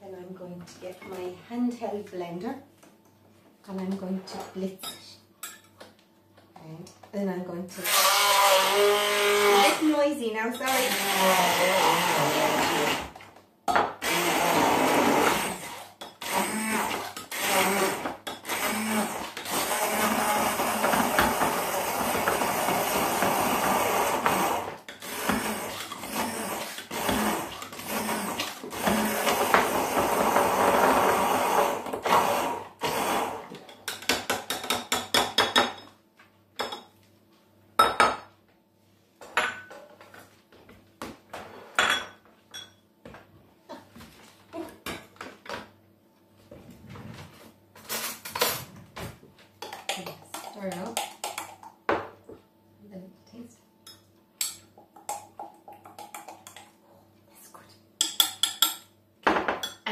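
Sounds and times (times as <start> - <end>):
stick blender running: 7.8 - 9.9, 10.7 - 13.2, 14.0 - 33.6.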